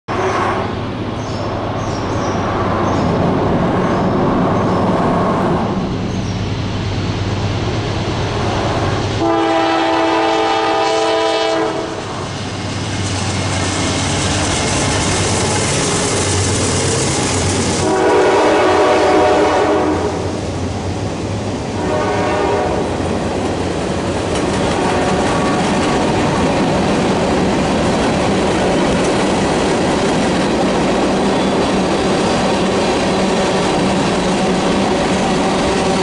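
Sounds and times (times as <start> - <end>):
freight train rumbling on rails: 0.1 - 36.0
locomotive horn: 9.2 - 12.2, 17.8 - 20.2, 21.7 - 23.0, 24.7 - 25.8.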